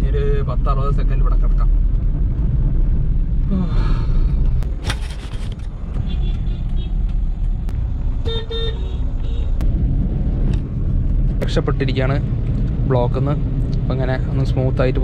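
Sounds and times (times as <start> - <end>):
car engine rumble and road noise: 0.0 - 15.0
vehicle horns honking: 6.0 - 7.0, 8.2 - 9.6.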